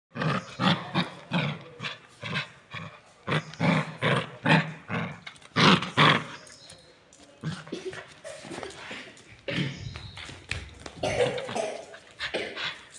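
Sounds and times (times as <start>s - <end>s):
puppy growling: 0.1s - 6.5s.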